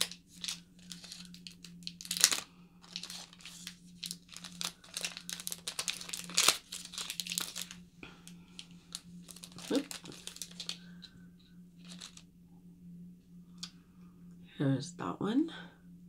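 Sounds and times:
wrappers crinkling and tearing: 0:00.0 - 0:11.0, 0:11.8 - 0:12.2.

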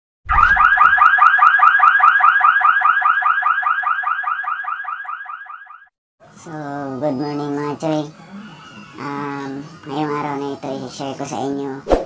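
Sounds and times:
warbling alarm-like chirp: 0:00.3 - 0:05.9.

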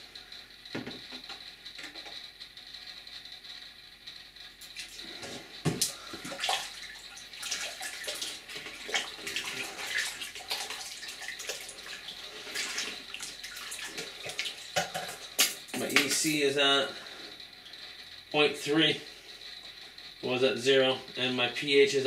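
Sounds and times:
water sloshing and splashing: 0:04.7 - 0:16.2.

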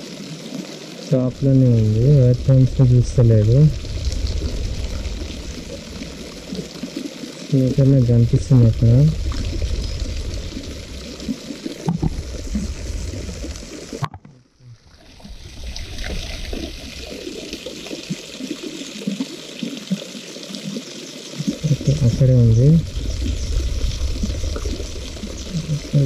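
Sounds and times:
water trickling into a pond: 0:00.0 - 0:26.0.

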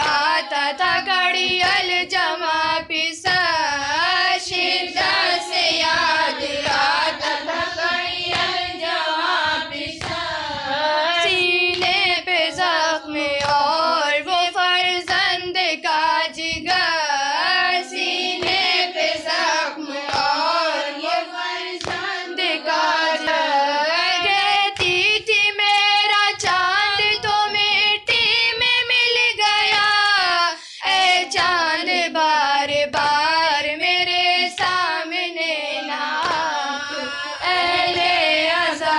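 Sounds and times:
steady beat of sharp strikes: 0:00.0 - 0:13.8, 0:16.4 - 0:28.6
woman singing a lament: 0:00.0 - 0:38.9.

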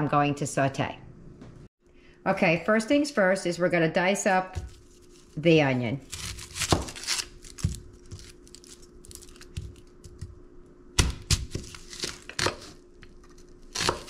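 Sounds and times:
onion skin crackling: 0:04.6 - 0:05.4, 0:06.0 - 0:10.3, 0:11.0 - 0:14.0.

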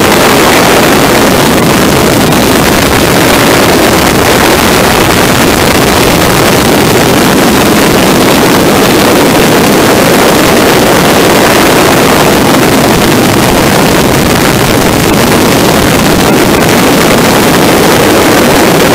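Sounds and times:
biplane engine roar: 0:00.0 - 0:18.9
wind buffeting microphone: 0:00.0 - 0:18.9.

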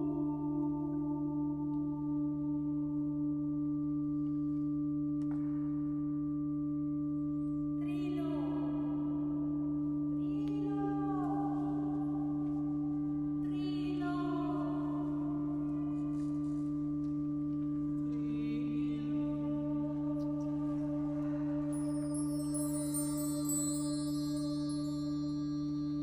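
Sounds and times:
vocal ensemble drone: 0:10.2 - 0:26.0.

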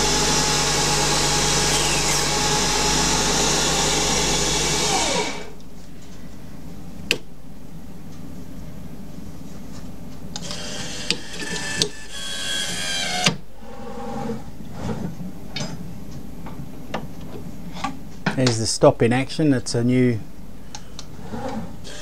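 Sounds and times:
lathe slides whirring: 0:01.4 - 0:03.8.

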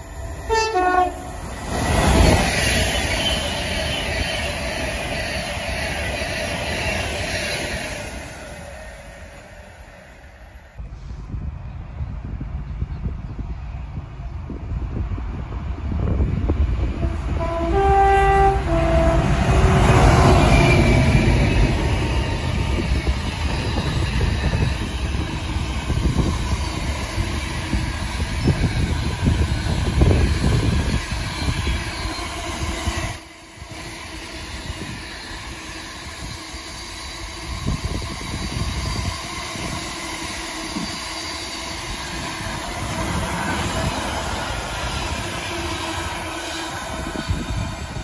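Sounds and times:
two-tone train horn: 0:00.5 - 0:01.2, 0:16.8 - 0:21.3.

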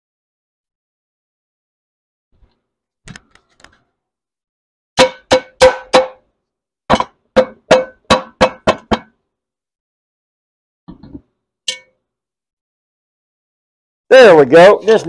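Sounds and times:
metal clanks on cast iron pot: 0:11.7 - 0:11.9.

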